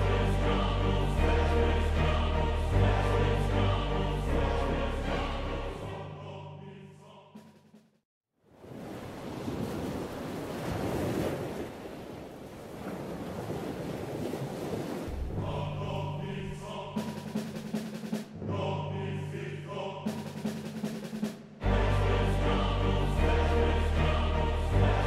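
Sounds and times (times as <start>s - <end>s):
choral orchestral music: 0.0s - 7.8s, 15.1s - 25.0s
sea waves washing over sand: 8.6s - 15.7s.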